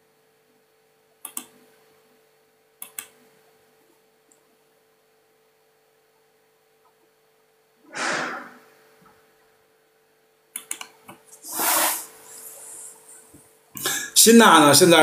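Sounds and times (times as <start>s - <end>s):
small clicks: 1.2s - 1.5s, 2.8s - 3.2s, 10.6s - 11.2s
man breathing into microphone: 13.8s - 14.2s.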